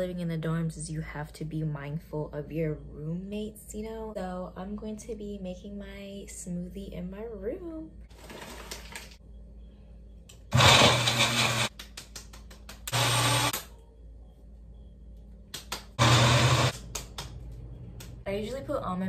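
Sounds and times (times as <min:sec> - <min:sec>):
blender motor whirring: 0:10.5 - 0:11.7, 0:12.9 - 0:13.6, 0:16.0 - 0:16.7.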